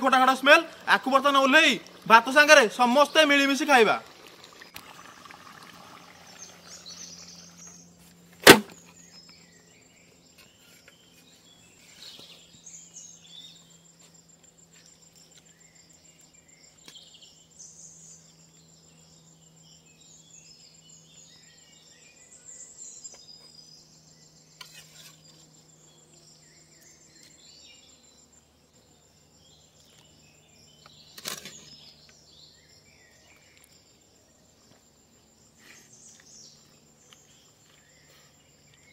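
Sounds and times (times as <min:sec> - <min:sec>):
high insect trill: 0:00.0 - 0:38.9
bird chirps: 0:06.3 - 0:08.0, 0:08.7 - 0:28.3, 0:29.4 - 0:34.4
sharp knock: 0:08.4 - 0:08.8.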